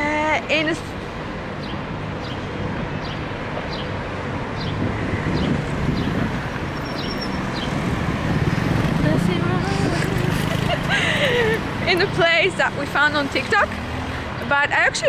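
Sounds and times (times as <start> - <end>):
traffic rumble: 0.0 - 15.0
wind on microphone: 4.6 - 6.8.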